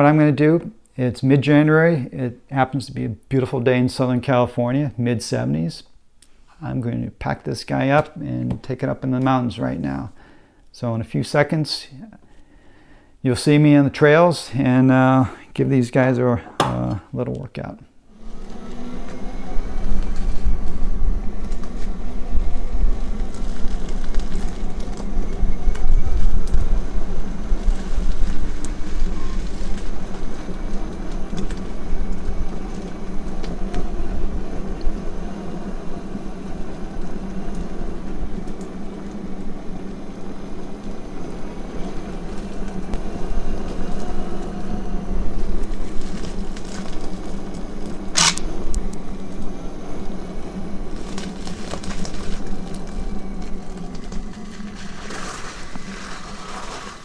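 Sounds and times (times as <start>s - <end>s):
tyre and motor hum: 18.0s - 57.0s
road and wind rumble: 18.2s - 55.7s.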